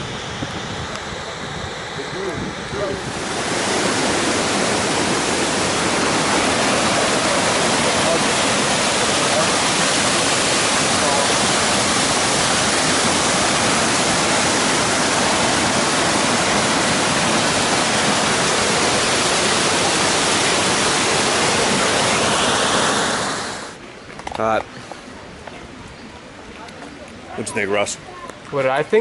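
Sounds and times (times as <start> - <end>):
waterfall rushing over rocks: 2.0 - 23.8.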